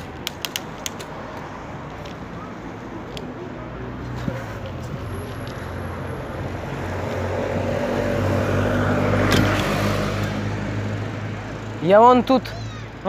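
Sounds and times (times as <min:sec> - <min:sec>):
vehicle passing close by: 0:03.7 - 0:11.9.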